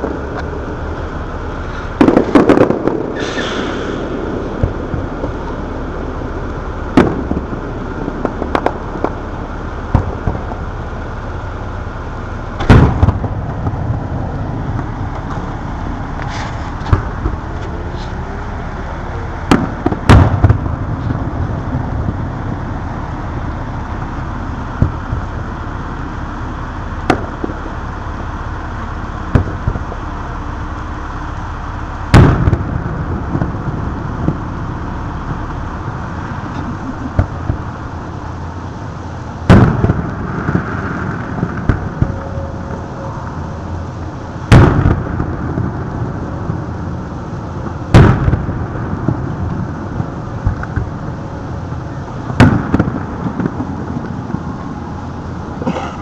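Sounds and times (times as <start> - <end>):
fireworks booming: 0.0 - 56.0
steady background noise: 0.0 - 56.0.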